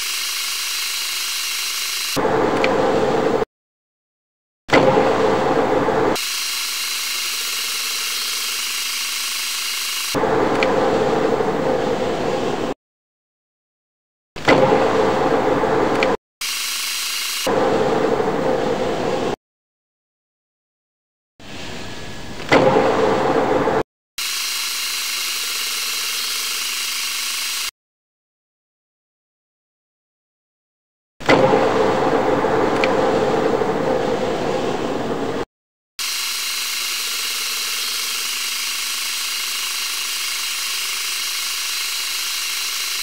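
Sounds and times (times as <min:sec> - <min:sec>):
metal lathe cutting steel: 0:00.0 - 0:02.2, 0:06.2 - 0:10.3, 0:36.0 - 0:43.0.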